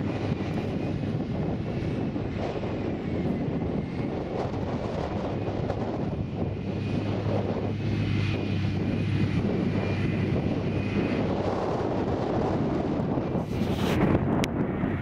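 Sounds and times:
forage harvester engine drone: 0.0 - 15.0.

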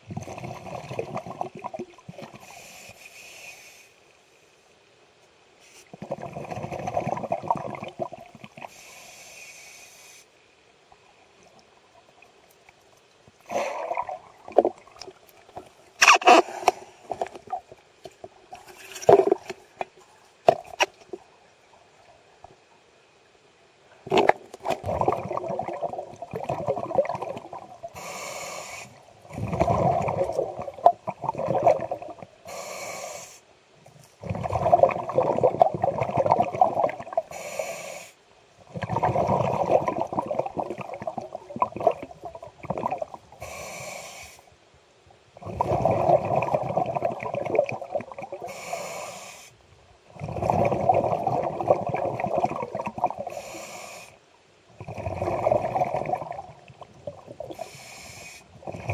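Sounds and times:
exhaled bubbles gurgling: 0.0 - 2.5, 5.9 - 8.8, 13.4 - 15.6, 24.0 - 28.2, 29.0 - 32.4, 34.2 - 37.4, 38.6 - 43.6, 45.4 - 48.8, 50.1 - 53.7, 54.7 - 57.8, 58.5 - 58.9
regulator inhale hiss: 2.4 - 4.6, 8.6 - 10.4, 27.9 - 29.1, 32.4 - 33.5, 37.3 - 38.3, 43.3 - 44.6, 48.4 - 49.6, 53.2 - 54.3, 57.5 - 58.6.

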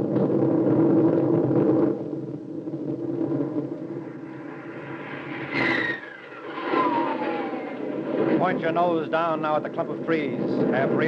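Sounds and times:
falling whine: 0.0 - 11.0
warplane engine rumble: 0.0 - 11.0.

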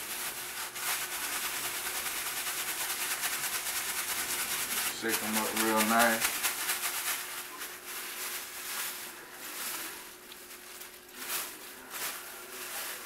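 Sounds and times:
plastic bag rustling: 0.0 - 13.0.

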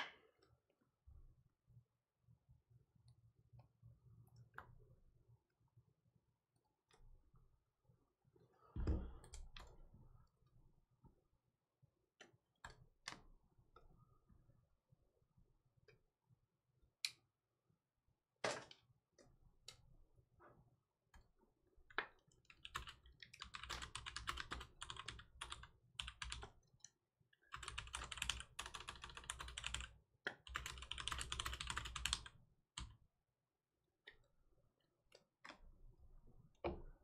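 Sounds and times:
computer keyboard typing: 22.5 - 26.6, 27.5 - 32.9.

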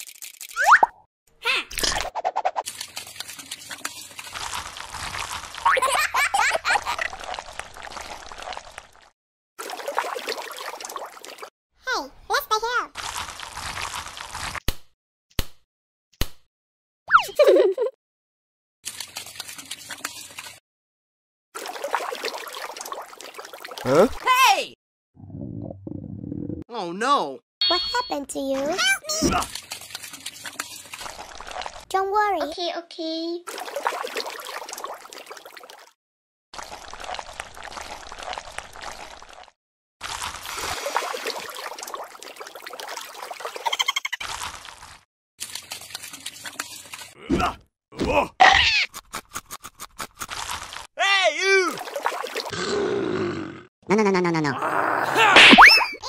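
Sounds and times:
muddy water splashing: 2.6 - 11.5, 21.6 - 24.3, 28.7 - 31.9, 33.5 - 36.0, 36.6 - 47.3, 51.6 - 52.5
bubbling gurgling water: 6.8 - 9.1, 36.6 - 39.5.

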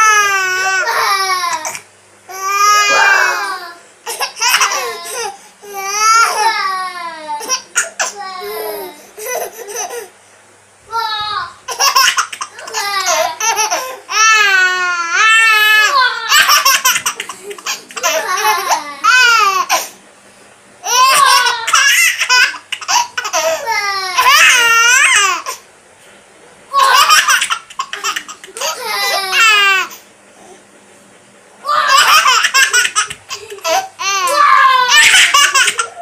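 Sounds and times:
baby laughing: 0.0 - 6.7, 7.4 - 10.1, 11.7 - 19.9, 20.8 - 25.6, 26.7 - 30.0, 31.7 - 36.0.

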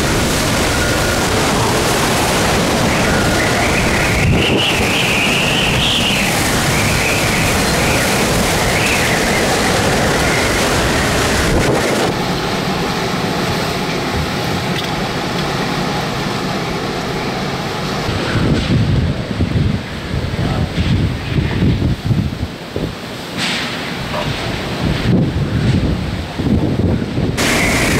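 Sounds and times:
wind buffeting the microphone: 0.0 - 12.4, 18.0 - 27.9
wavering high whistle: 2.8 - 8.0.

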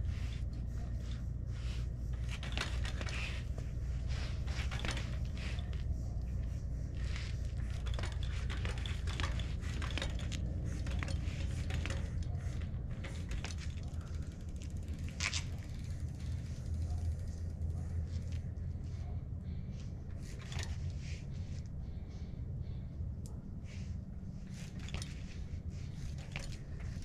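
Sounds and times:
bicycle tyres clicking and crackling: 0.0 - 22.8, 23.7 - 27.0
steady low rumble: 0.0 - 27.0.

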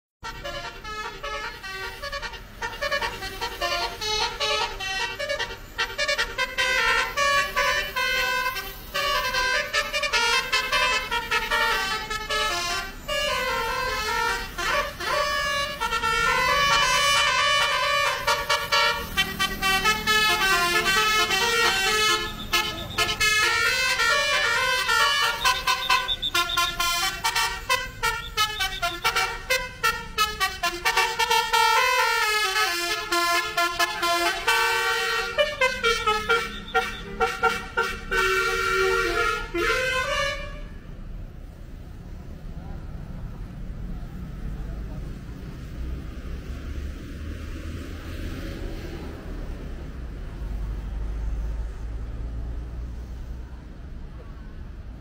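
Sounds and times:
musical bus air horns: 0.2 - 41.2.

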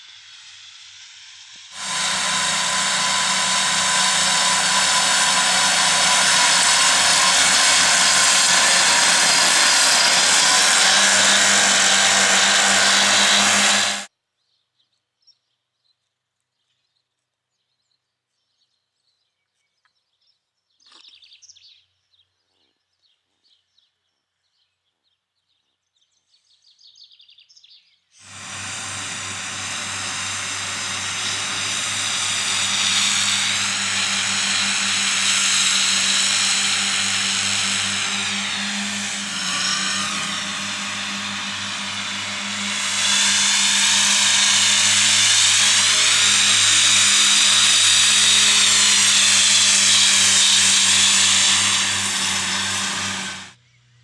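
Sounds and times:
tractor engine and mower drive: 1.7 - 14.1, 28.2 - 53.6.

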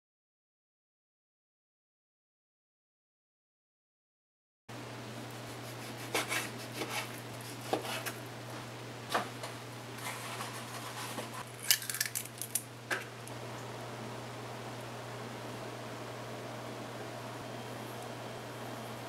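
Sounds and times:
steady low hum: 4.7 - 19.0
egg cracking over glass bowl: 11.5 - 12.7.

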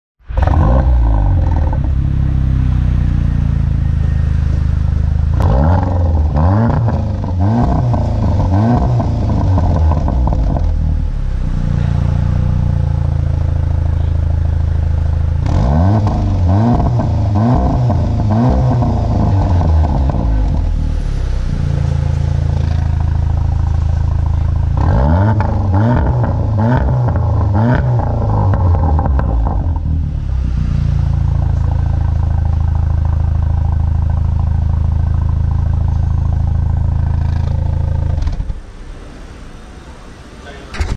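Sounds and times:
car engine idling and revving: 0.2 - 40.9.

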